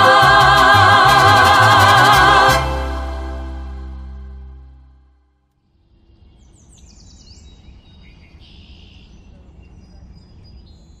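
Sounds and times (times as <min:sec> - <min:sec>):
small birds chirping: 0:06.0 - 0:11.0.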